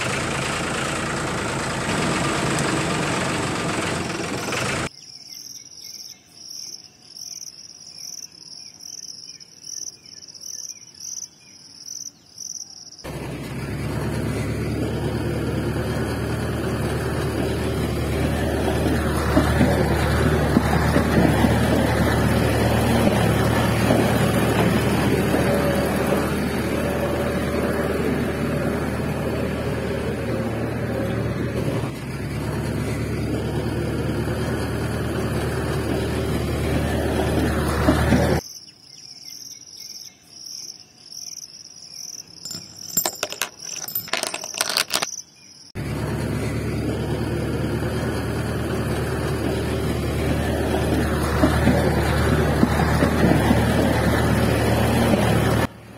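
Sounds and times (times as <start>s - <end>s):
insects chirping: 4.9s - 13.1s, 38.4s - 45.8s
motor hum: 13.1s - 38.4s.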